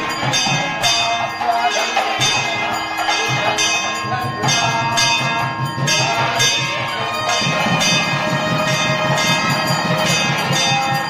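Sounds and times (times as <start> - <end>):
steady ringing tones: 0.0 - 11.0
temple bells ringing: 0.0 - 11.0.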